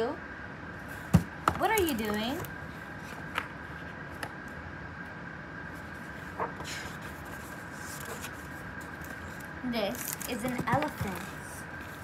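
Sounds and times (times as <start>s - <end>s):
paper rustling: 5.8s - 12.0s.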